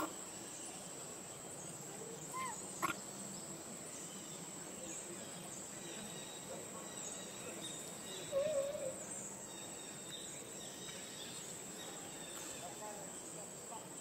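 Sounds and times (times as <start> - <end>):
high-pitched insect chorus: 0.0 - 14.0
wavering animal call: 2.3 - 3.0, 8.2 - 9.0.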